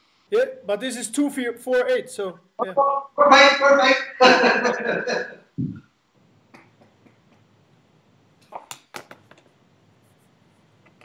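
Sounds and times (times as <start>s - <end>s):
faint sharp clicks and taps: 6.5s - 7.5s.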